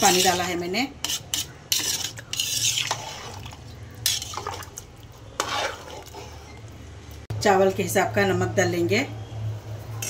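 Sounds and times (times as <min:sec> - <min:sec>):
metal spoon scraping pot: 0:00.0 - 0:06.7.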